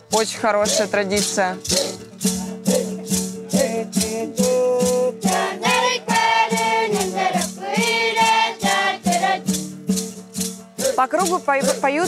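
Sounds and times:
strummed guitar: 0.0s - 12.0s
hand rattles shaken: 0.2s - 12.0s
high voices singing together: 1.6s - 9.6s, 10.8s - 12.0s.

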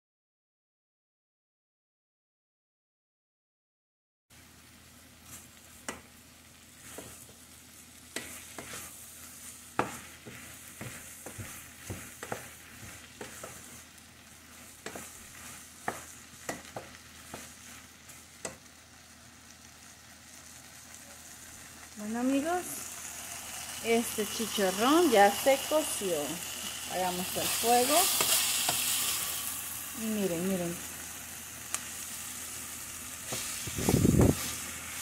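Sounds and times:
pork frying with sizzle: 4.3s - 35.0s
wooden spoon scraping and knocking pot: 6.8s - 7.4s, 8.1s - 8.9s, 9.8s - 13.8s, 14.5s - 18.7s.

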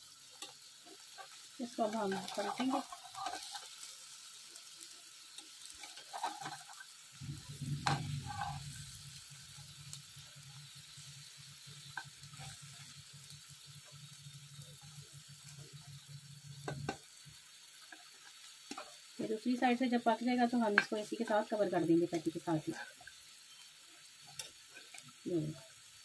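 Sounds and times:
oil sizzling in a frying pan: 0.0s - 26.0s
low steady hum: 7.2s - 17.0s.

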